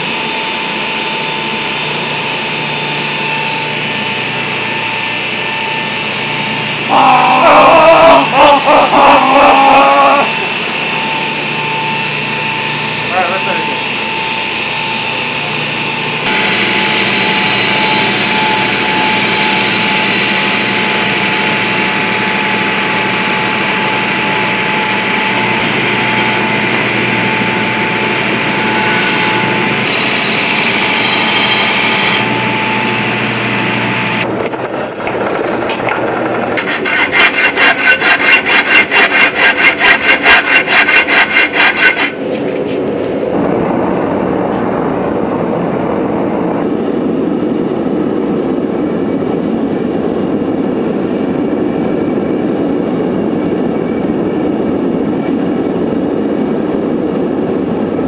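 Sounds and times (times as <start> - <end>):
forge burners rushing: 0.0 - 58.0
belt grinder grinding steel: 16.2 - 42.4.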